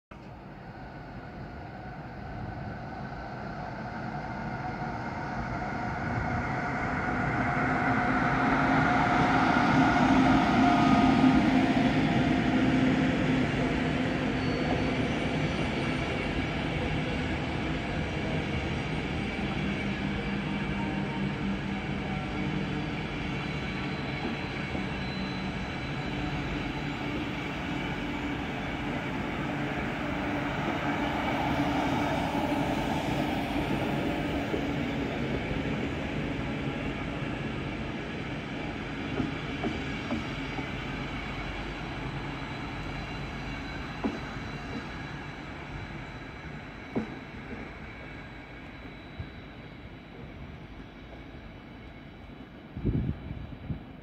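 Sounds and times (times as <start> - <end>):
train wheels rumbling on rails: 0.1 - 54.0
sharp clicks of train wheels: 39.1 - 40.8, 43.8 - 49.4.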